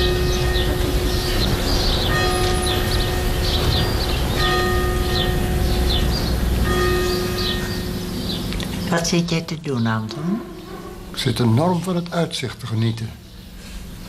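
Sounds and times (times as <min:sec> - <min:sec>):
church bell tolling: 0:00.0 - 0:09.4.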